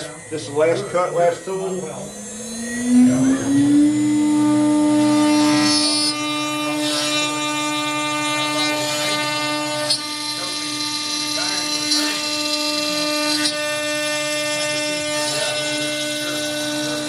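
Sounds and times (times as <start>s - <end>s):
router spindle whining: 0.0s - 17.0s.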